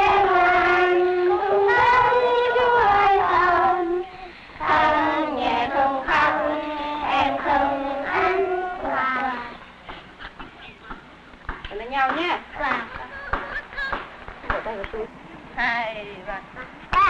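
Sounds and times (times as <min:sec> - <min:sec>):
young children singing: 0:00.0 - 0:10.6.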